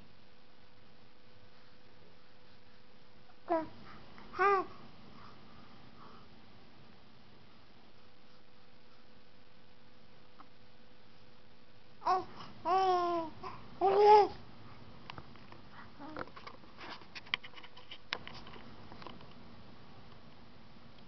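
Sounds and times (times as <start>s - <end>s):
infant cooing: 3.5s - 4.8s, 12.0s - 14.4s
faint clicks and rustles: 15.0s - 19.5s.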